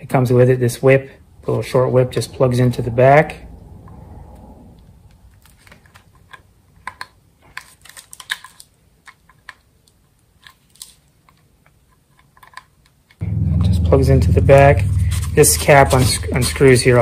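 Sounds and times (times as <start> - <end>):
plastic plug clicks and rattles: 6.2 - 13.2.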